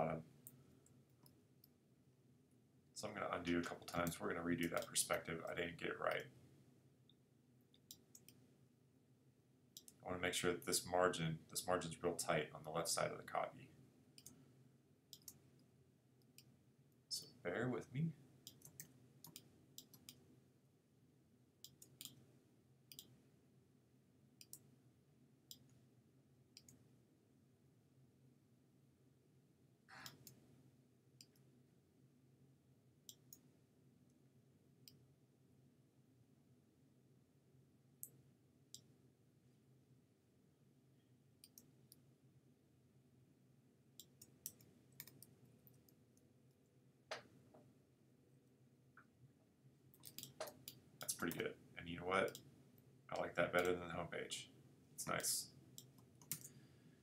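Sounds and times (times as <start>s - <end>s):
faint room hum: 0.0s - 57.0s
computer mouse clicks: 4.0s - 5.0s, 14.2s - 14.4s, 15.1s - 15.4s, 18.4s - 20.2s, 21.6s - 22.2s, 22.9s - 23.2s, 24.4s - 24.6s, 26.6s - 26.8s, 29.9s - 30.4s, 41.4s - 42.0s, 44.0s - 46.0s, 49.9s - 51.5s, 52.2s - 52.5s, 55.8s - 56.6s.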